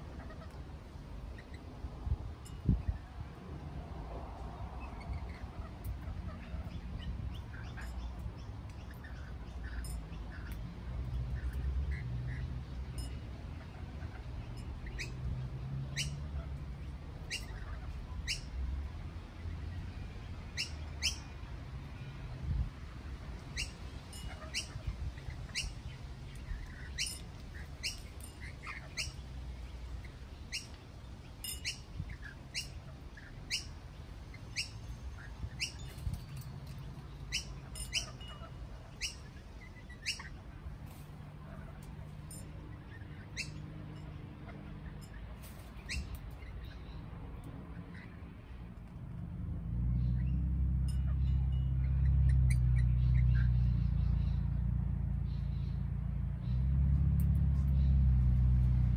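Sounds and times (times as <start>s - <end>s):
lorikeets chirping: 4.8s - 18.6s, 19.5s - 22.1s, 23.4s - 40.7s, 41.4s - 48.3s, 49.9s - 54.6s.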